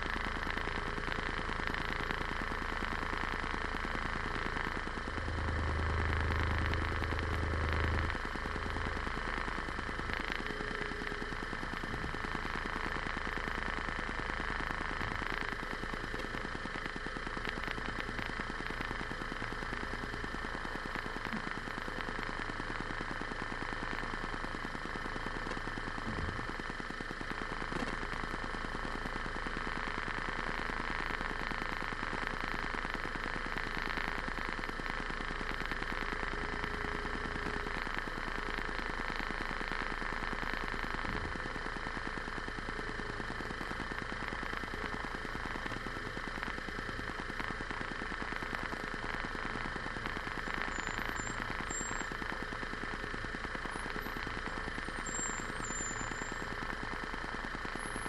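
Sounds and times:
vehicle engine and road noise: 0:03.2 - 0:11.0.

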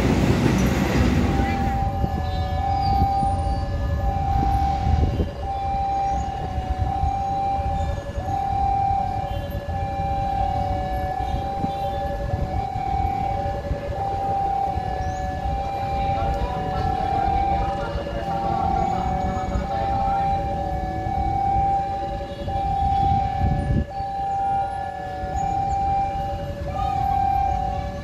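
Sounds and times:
low train rumble: 0:00.0 - 0:07.0
two-tone railway warning alarm: 0:00.1 - 0:28.0.

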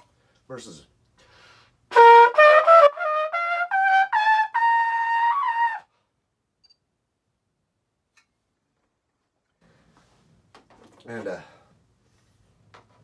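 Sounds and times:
trumpet playing ascending scale: 0:01.9 - 0:05.9.

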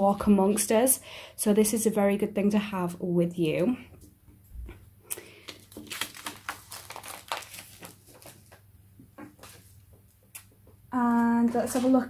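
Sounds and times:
packaging crinkling: 0:05.1 - 0:08.7.

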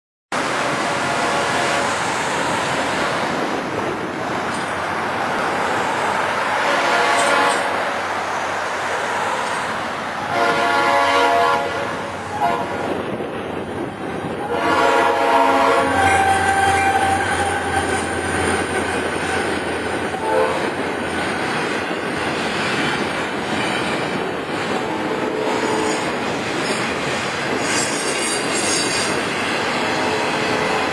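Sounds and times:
train rumbling: 0:00.3 - 0:30.9
locomotive air horn blasts: 0:06.6 - 0:07.8, 0:10.2 - 0:12.9, 0:14.4 - 0:18.2, 0:20.1 - 0:20.7.

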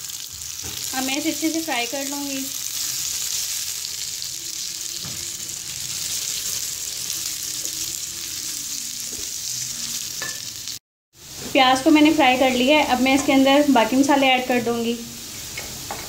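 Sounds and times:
onions sizzling in hot oil: 0:00.0 - 0:16.0.

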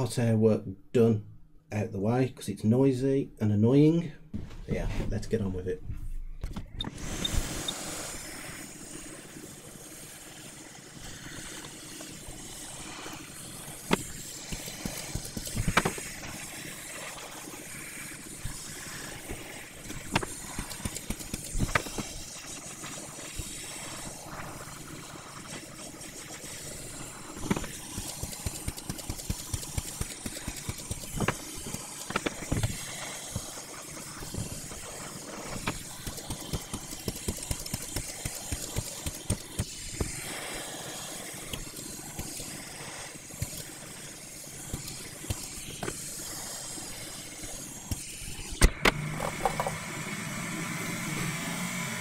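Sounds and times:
hot air station hissing: 0:06.8 - 0:52.0
tools clicking and tapping on board: 0:13.9 - 0:16.0, 0:19.9 - 0:22.1, 0:27.4 - 0:33.5, 0:35.6 - 0:40.1.

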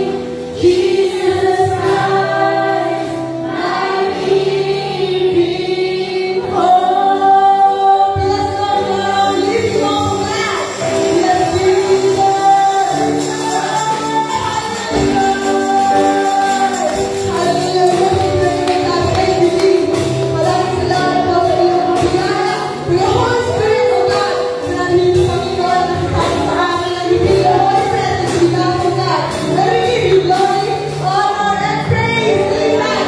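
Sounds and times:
woman singing into a microphone: 0:00.0 - 0:33.0
drums keeping a steady beat: 0:09.4 - 0:31.3.

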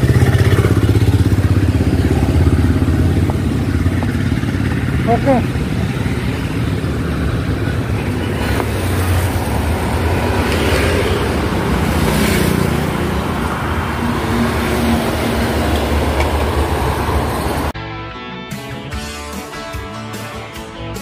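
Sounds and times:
vehicle passing: 0:00.0 - 0:17.7
road traffic noise: 0:00.0 - 0:21.0.

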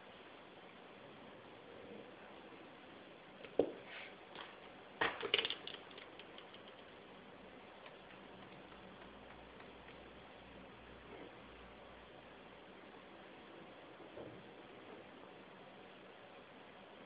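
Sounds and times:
clatter of small clicks: 0:04.4 - 0:07.0
compass ticking: 0:07.8 - 0:10.6.

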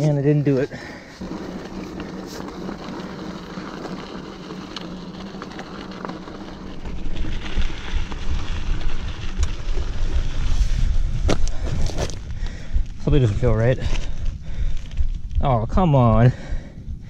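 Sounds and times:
tyres crunching on gravel: 0:00.0 - 0:12.4
bike rattling: 0:00.0 - 0:16.7
wind buffeting microphone: 0:01.2 - 0:17.0.

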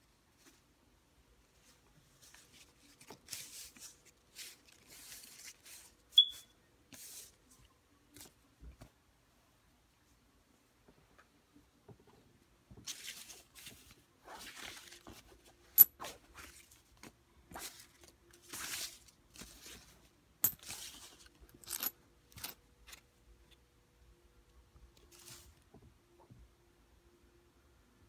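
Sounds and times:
banknotes rustling: 0:01.7 - 0:06.1.

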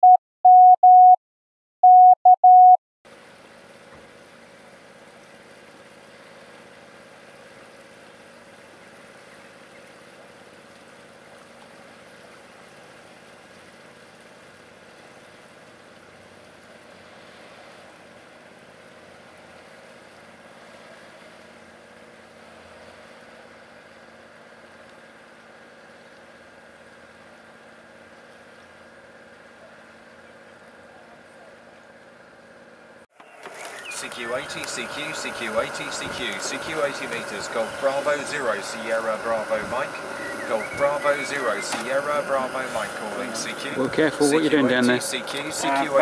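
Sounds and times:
boat engine humming: 0:03.1 - 0:46.0.

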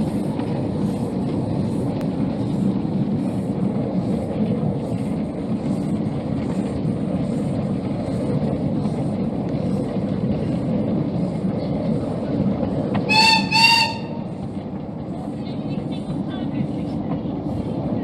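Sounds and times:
miniature train rumbling on track: 0:00.0 - 0:18.0
locomotive high toots: 0:12.9 - 0:14.6.

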